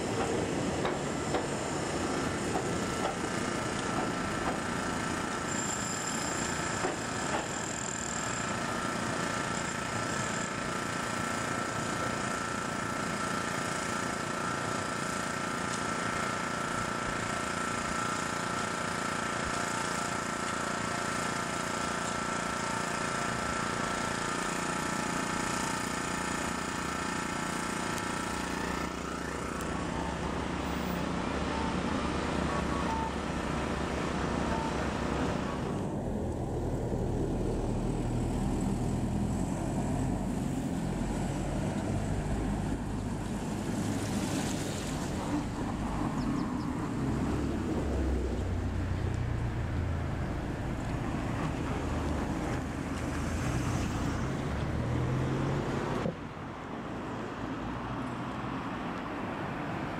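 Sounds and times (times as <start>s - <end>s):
electric train motor whine: 0.0s - 43.1s
low road traffic rumble: 27.4s - 59.9s.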